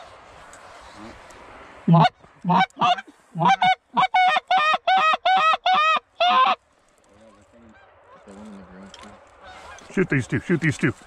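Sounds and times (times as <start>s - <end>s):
goose honking: 1.9s - 6.6s, 9.4s - 11.0s.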